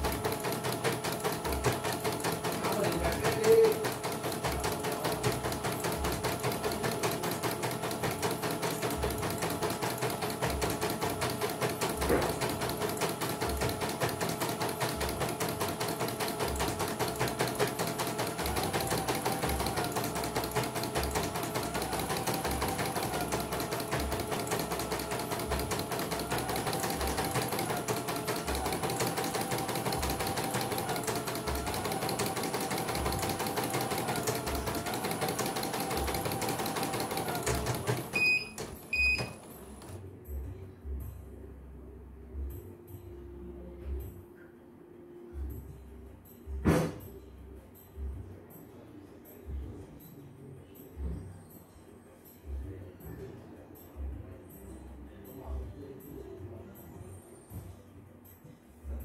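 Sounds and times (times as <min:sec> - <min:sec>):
embroidery machine stitching rattle: 0:00.0 - 0:38.2.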